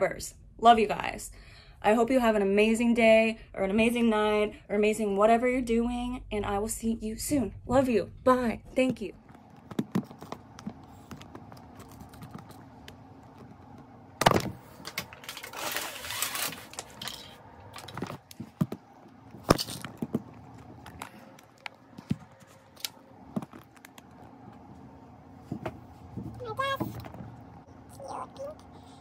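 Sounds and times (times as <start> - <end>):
rustling: 14.6 - 18.6.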